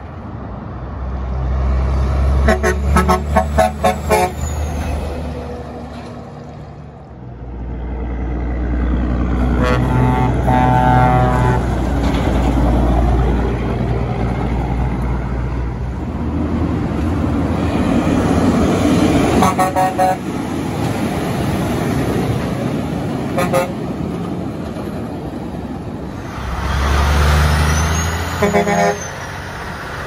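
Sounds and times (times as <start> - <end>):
truck rumble and tyre noise: 0.0 - 30.0
truck air horn: 2.4 - 4.8, 9.4 - 11.8, 19.3 - 20.3, 23.3 - 23.8, 27.8 - 29.3.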